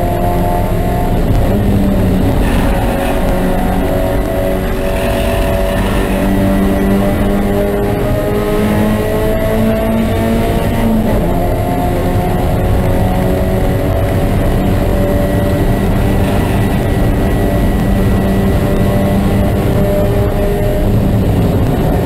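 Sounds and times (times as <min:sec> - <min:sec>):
race car engine at speed: 0:00.0 - 0:22.0.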